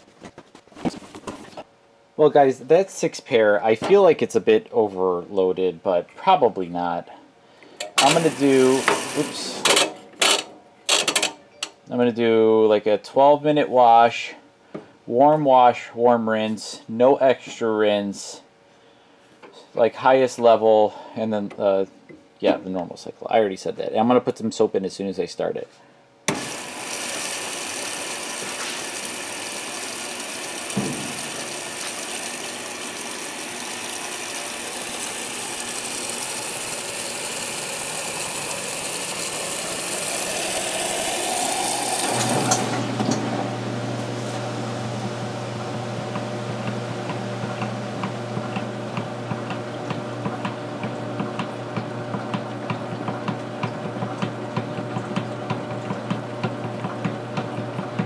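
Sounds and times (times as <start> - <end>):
washing machine motor hum: 7.8 - 11.4, 26.3 - 58.0
water running into tub: 8.0 - 9.6, 26.3 - 58.0.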